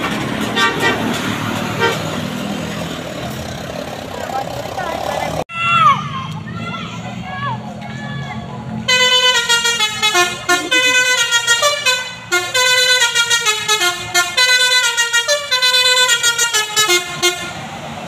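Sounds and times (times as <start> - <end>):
multi-tone air horn melody: 0.5 - 1.2, 1.8 - 2.1, 8.9 - 17.6.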